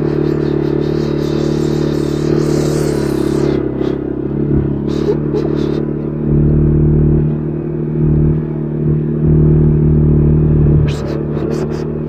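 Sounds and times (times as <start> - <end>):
brief scratchy noises: 0.0 - 4.0, 10.9 - 12.0
atv engine running: 0.0 - 12.0.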